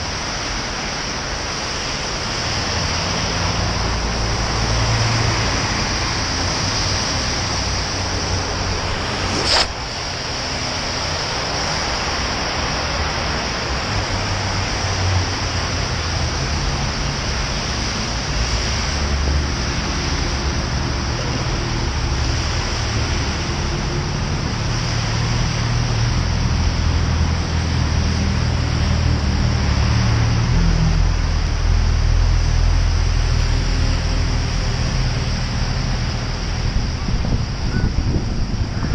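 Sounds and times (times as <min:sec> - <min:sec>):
bicycle tyre hiss on wet road: 0:00.0 - 0:37.6
road traffic: 0:00.0 - 0:38.9
low rumble: 0:07.1 - 0:10.9
wind on microphone: 0:34.4 - 0:38.9.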